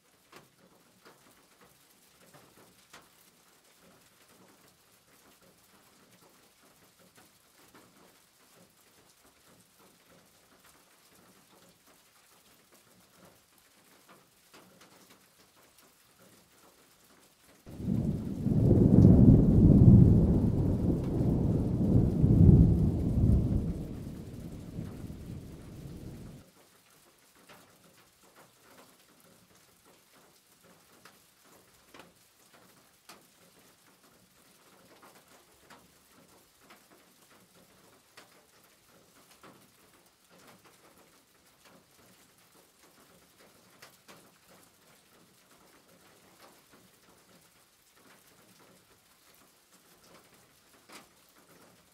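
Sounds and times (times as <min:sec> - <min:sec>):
loud low rumbling: 0:17.7 - 0:26.4.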